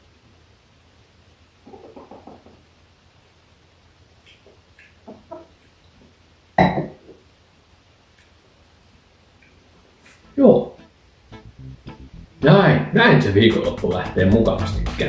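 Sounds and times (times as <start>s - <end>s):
hens clucking softly: 1.6s - 2.7s.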